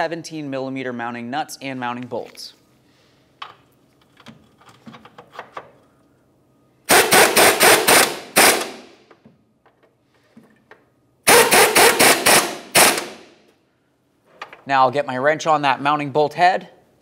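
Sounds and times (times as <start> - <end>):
air tool hammering: 6.9 - 9.0, 11.2 - 13.3.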